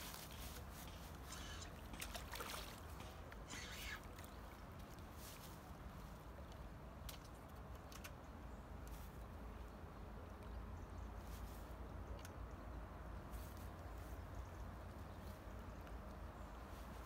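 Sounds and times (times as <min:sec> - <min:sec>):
fish splashing at water surface: 0:01.6 - 0:04.7.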